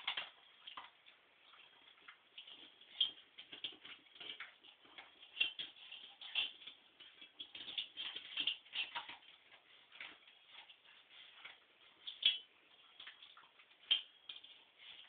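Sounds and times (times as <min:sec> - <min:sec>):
puppy eating from metal bowl: 0:00.0 - 0:15.0.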